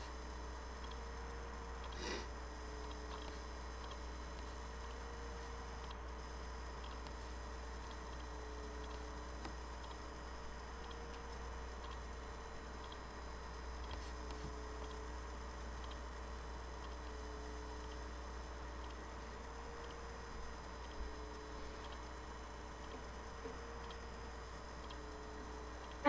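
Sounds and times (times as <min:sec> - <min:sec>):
faint low hum: 0:00.0 - 0:26.0
faint ticks: 0:00.7 - 0:01.1, 0:05.7 - 0:26.0.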